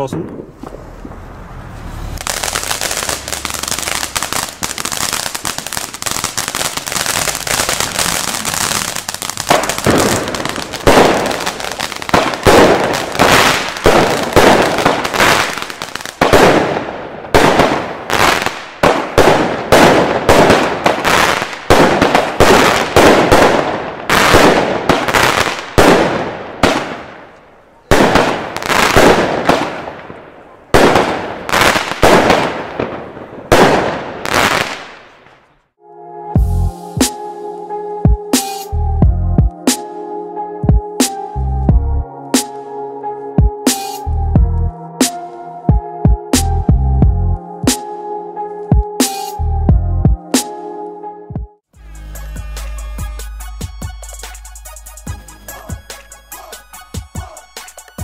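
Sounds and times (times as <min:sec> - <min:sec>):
crackling star bursts: 0:00.6 - 0:16.2
crackling firework fountain: 0:02.2 - 0:35.4.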